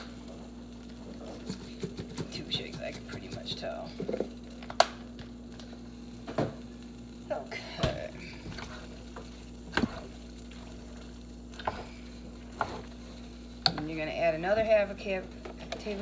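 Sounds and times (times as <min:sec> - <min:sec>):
spoon stirring in metal pot: 0:07.8 - 0:14.0.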